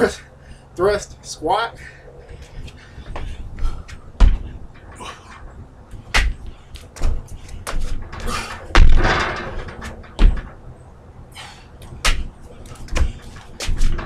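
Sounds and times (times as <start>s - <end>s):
scuffing on wooden boards: 2.4s - 5.3s, 11.4s - 14.0s
heavy thuds on wooden deck: 3.1s - 5.3s, 6.0s - 10.6s.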